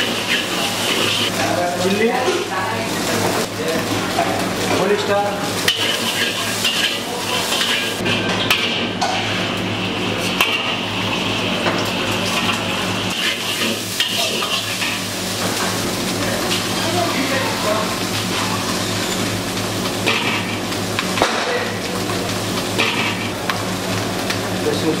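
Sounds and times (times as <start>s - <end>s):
metal spatula scraping wok: 0.0s - 1.4s, 5.5s - 9.4s, 12.3s - 15.0s
frying sizzle: 0.0s - 25.0s.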